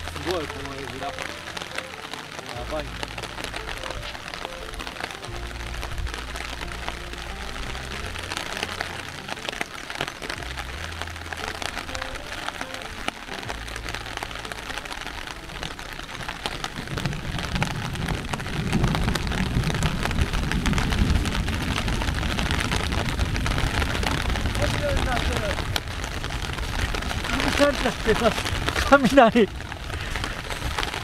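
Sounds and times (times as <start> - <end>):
heavy rain pelting down: 0.0 - 31.0
deep low rumble: 5.3 - 12.4, 13.4 - 31.0.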